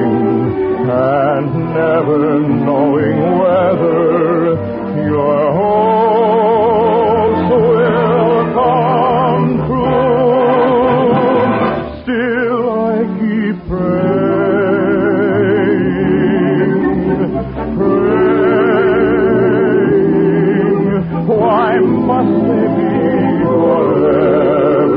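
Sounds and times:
orchestral accompaniment: 0.0s - 24.9s.

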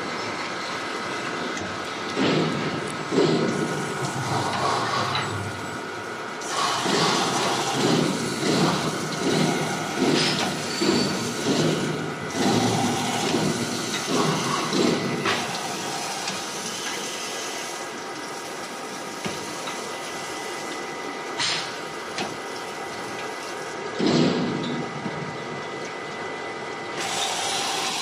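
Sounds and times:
water jets splashing in bottles: 0.0s - 28.0s
machine running: 2.0s - 18.0s, 26.4s - 28.0s.

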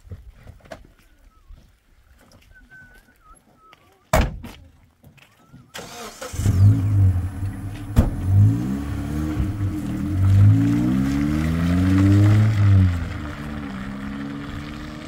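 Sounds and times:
engine cranking and running: 5.8s - 8.5s.

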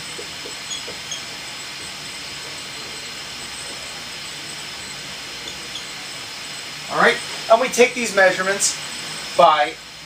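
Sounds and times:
marker squeaks: 0.0s - 1.3s, 5.4s - 6.0s
marker writing on whiteboard: 0.0s - 1.3s
steady hiss: 0.0s - 10.0s.

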